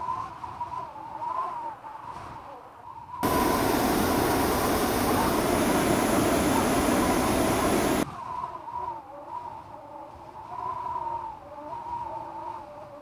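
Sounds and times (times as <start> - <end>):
propane burner roaring: 3.2 - 8.0.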